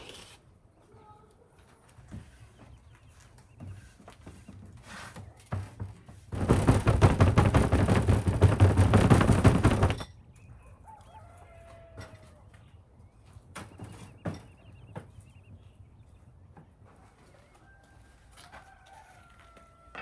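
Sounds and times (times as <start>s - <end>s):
faint chicken calls: 10.3s - 20.0s
rooster crowing: 10.6s - 12.5s, 17.3s - 20.0s.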